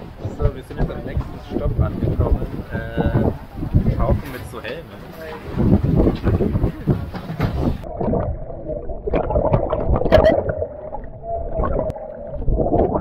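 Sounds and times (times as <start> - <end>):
underwater air bubbles gurgling: 7.6 - 13.0.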